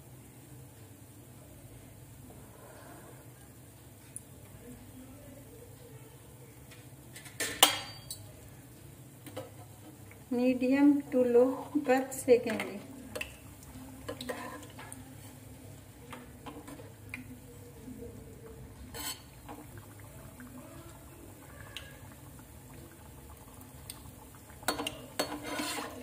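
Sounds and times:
frying bubbling in oil: 0:06.6 - 0:26.0
spoon clinking against pan: 0:07.4 - 0:08.3.

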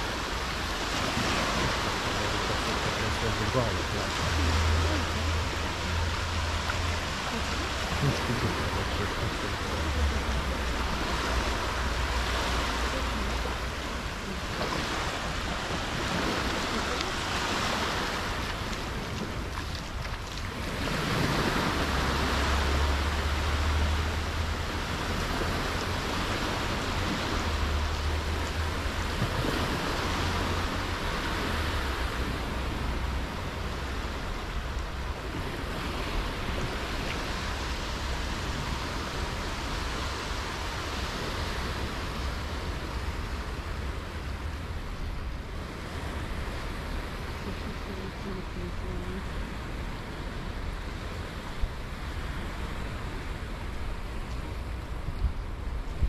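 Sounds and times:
rushing wash of noise: 0:00.0 - 0:56.0
wind buffeting microphone: 0:24.1 - 0:56.0.

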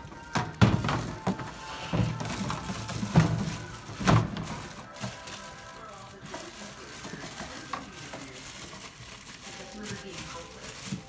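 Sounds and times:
trash can pedal thudding: 0:00.0 - 0:04.9.

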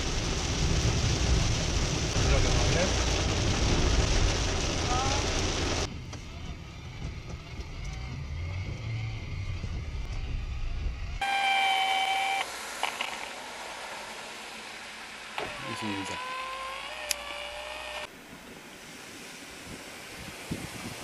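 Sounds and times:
heavy rain on windscreen: 0:00.0 - 0:06.0, 0:12.5 - 0:16.1
car rumbling on wet road: 0:00.0 - 0:11.2, 0:12.5 - 0:16.2.

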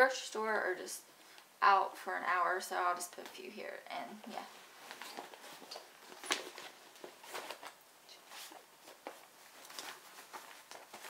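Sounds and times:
fabric rustling and scraping: 0:04.3 - 0:11.0.

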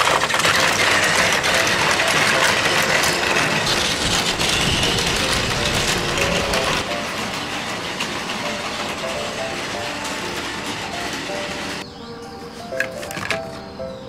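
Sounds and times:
toy train motors whirring: 0:00.0 - 0:11.8
wheels clicking over plastic track: 0:00.0 - 0:11.8, 0:12.7 - 0:13.6.

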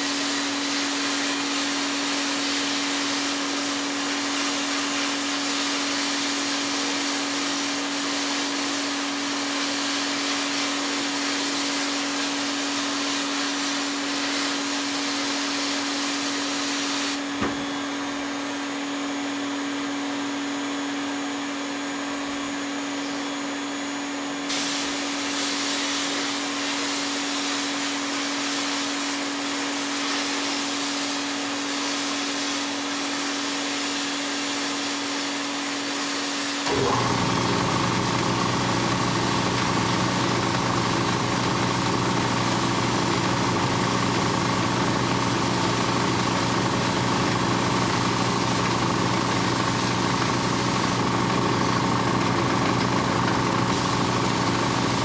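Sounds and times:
sandblast gun hissing: 0:00.0 - 0:17.5, 0:24.4 - 0:52.8, 0:53.5 - 0:55.0
steady motor hum: 0:36.6 - 0:55.0.

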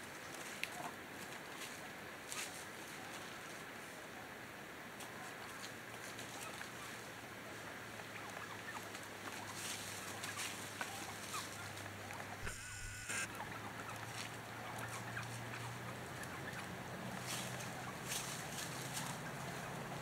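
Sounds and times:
turkeys rustling in dry leaves: 0:00.0 - 0:04.2, 0:04.9 - 0:12.3, 0:13.3 - 0:20.0
steady low hum: 0:12.4 - 0:13.3.

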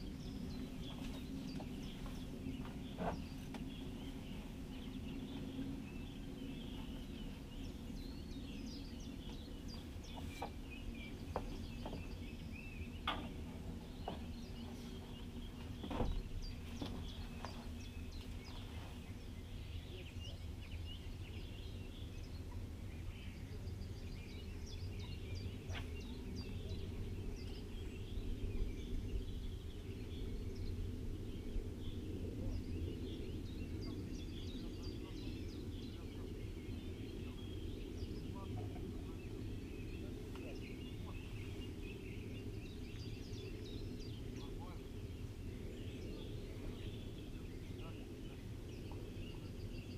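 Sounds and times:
birds singing: 0:00.0 - 0:49.9
steady low rumble: 0:00.0 - 0:49.9.

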